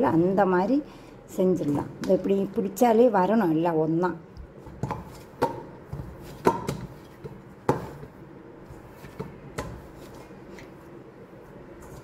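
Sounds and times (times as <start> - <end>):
dough knocking against metal bowl: 4.8 - 8.0.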